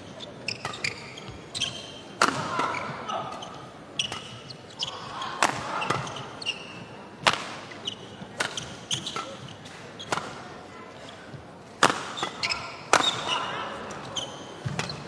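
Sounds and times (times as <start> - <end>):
court shoes squeaking: 0.0 - 15.0
rackets striking shuttlecock: 7.2 - 10.4, 11.8 - 15.0.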